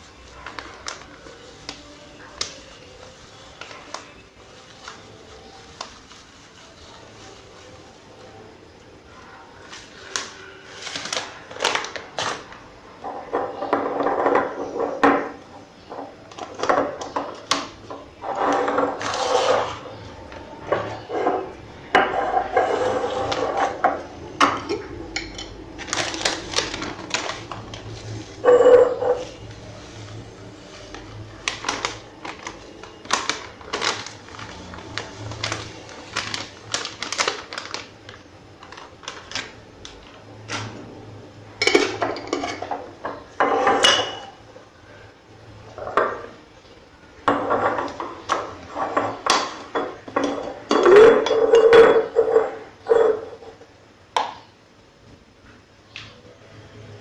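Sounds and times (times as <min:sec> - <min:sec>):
plastic bags crinkling: 0:00.0 - 0:08.5, 0:09.6 - 0:12.7, 0:24.7 - 0:40.8.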